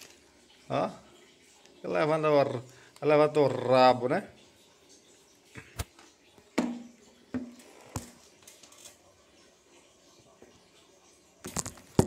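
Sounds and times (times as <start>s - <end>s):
plastic knocking on wooden table: 6.6s - 8.2s.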